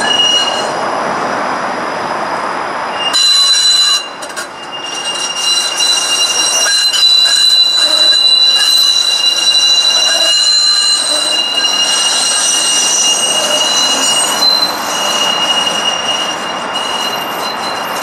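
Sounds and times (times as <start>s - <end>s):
wheels squealing on curve: 0.0s - 0.8s, 3.0s - 18.0s
streetcar rumbling on track: 0.0s - 18.0s.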